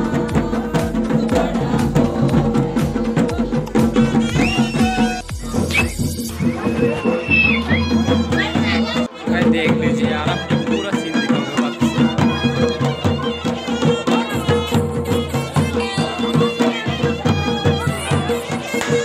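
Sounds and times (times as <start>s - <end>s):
large drums beating: 0.0s - 19.0s
reed wind instrument melody: 4.0s - 19.0s.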